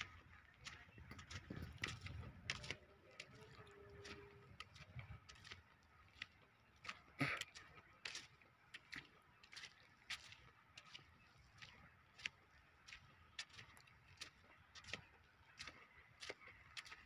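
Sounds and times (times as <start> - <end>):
footsteps on dusty brick: 0.0 - 17.0.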